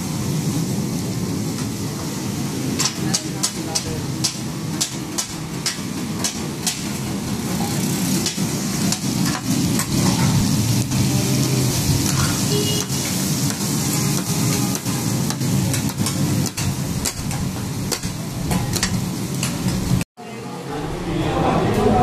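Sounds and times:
meat sizzling in fat: 0:00.0 - 0:20.0
metal spatulas clacking on griddle: 0:02.8 - 0:07.0, 0:13.5 - 0:19.9.

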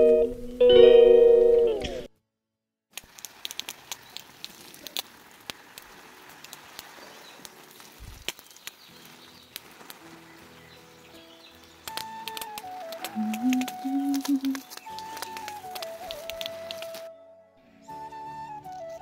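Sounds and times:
guitar music: 0:00.0 - 0:02.1, 0:10.0 - 0:19.0
drops ticking on leaves: 0:02.9 - 0:17.1, 0:18.6 - 0:19.0
hose water spraying on shrubs: 0:02.9 - 0:17.1.

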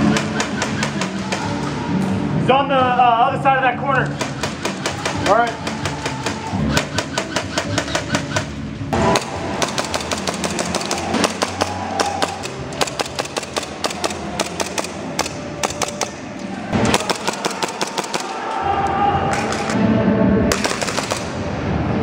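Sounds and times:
airsoft guns firing: 0:00.0 - 0:01.8, 0:04.1 - 0:18.5, 0:20.5 - 0:21.4.

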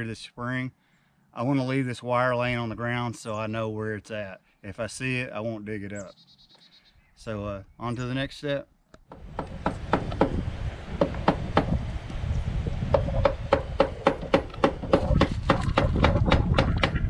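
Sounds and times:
hammer tapping on wood: 0:09.1 - 0:10.4, 0:11.0 - 0:11.7, 0:12.9 - 0:17.0.

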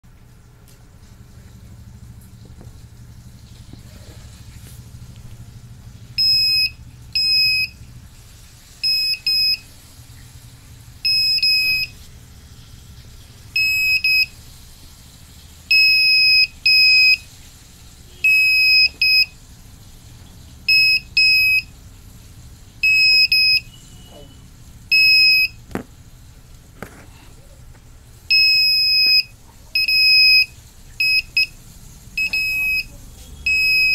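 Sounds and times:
alarm buzzer beeping: 0:06.2 - 0:07.8, 0:08.8 - 0:09.7, 0:11.0 - 0:12.0, 0:13.6 - 0:14.3, 0:15.7 - 0:17.3, 0:18.1 - 0:19.4, 0:20.7 - 0:21.7, 0:22.8 - 0:24.3, 0:24.9 - 0:25.6, 0:28.3 - 0:31.6, 0:32.2 - 0:33.9.

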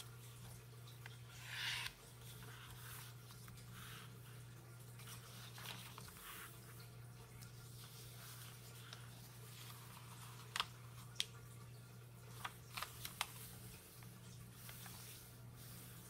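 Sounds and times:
low steady hum: 0:00.0 - 0:16.0
paper rustling and creasing: 0:05.0 - 0:06.9, 0:07.6 - 0:11.3, 0:12.3 - 0:16.0.

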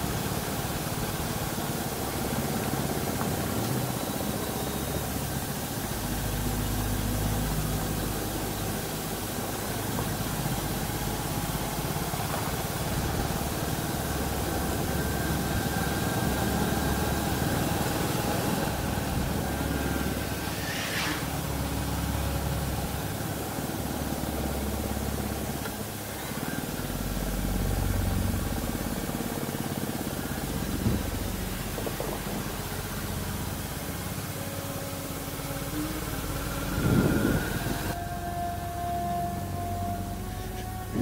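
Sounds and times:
motorcycle engine running: 0:00.0 - 0:20.6, 0:21.2 - 0:38.4.

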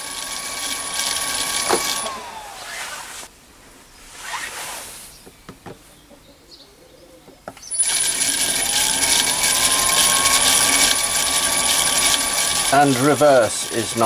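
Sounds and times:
lathe motor and gears whining: 0:00.0 - 0:03.3, 0:07.6 - 0:14.0.

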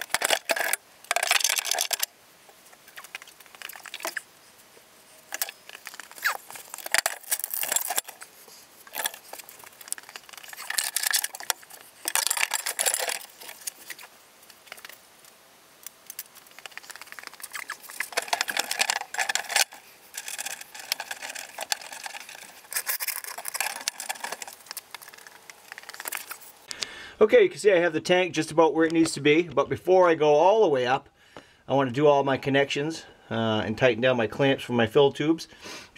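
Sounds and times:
plastic tank scraping and rustling: 0:16.6 - 0:26.5.

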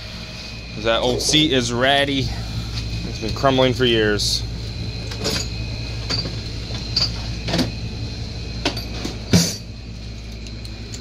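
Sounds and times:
steady low hum: 0:00.0 - 0:11.0
parts and tools clicking and knocking: 0:05.1 - 0:07.8, 0:08.6 - 0:11.0.

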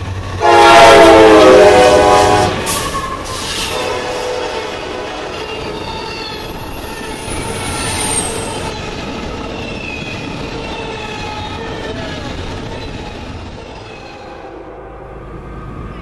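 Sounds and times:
train wheels rumbling on rail: 0:00.0 - 0:16.0
wheels squealing: 0:05.3 - 0:14.4.

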